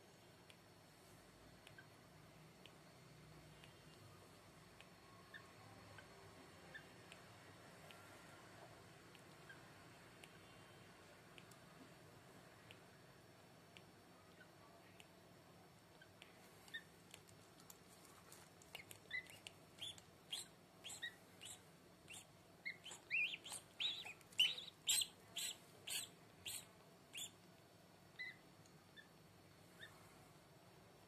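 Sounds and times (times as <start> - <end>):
duckling peeping: 18.8 - 27.4, 28.2 - 29.1.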